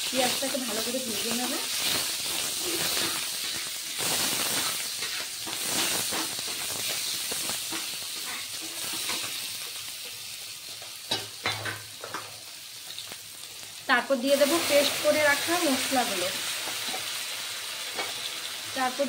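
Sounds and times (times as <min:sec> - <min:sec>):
onions sizzling in hot oil: 0:00.0 - 0:19.0
metal spatula scraping pan: 0:01.4 - 0:03.8, 0:04.5 - 0:07.1.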